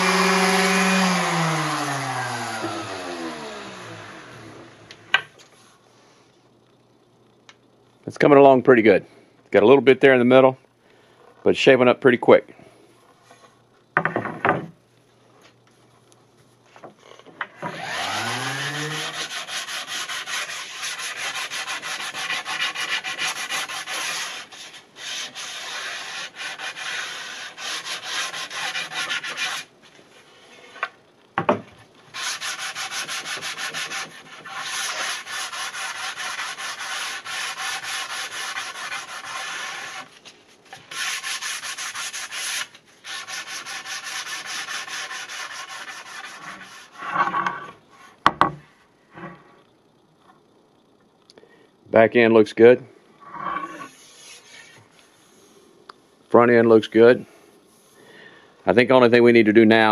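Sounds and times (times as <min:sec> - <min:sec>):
sandpaper sanding wood: 0:00.0 - 0:03.2, 0:17.9 - 0:29.7, 0:32.1 - 0:47.0, 0:53.9 - 0:55.4.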